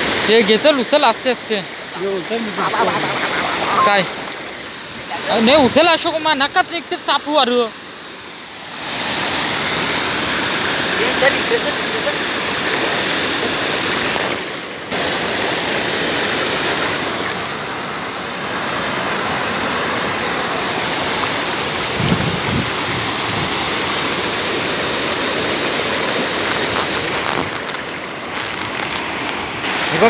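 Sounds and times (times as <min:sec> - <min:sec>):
flowing water: 0:00.0 - 0:30.0
water streaming out of a net: 0:18.4 - 0:30.0.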